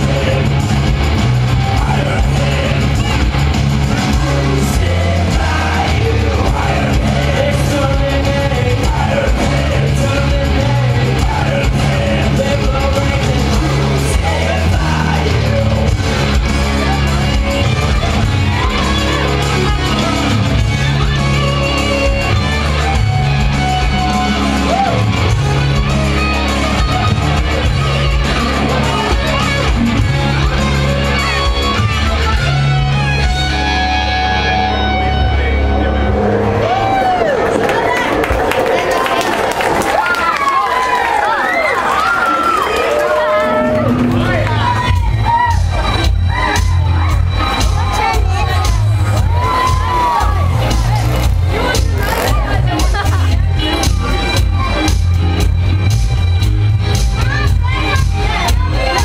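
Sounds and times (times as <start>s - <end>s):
bass line: 0.0s - 38.8s, 43.2s - 59.0s
electric guitars: 0.0s - 59.0s
person singing or shouting: 44.6s - 52.9s.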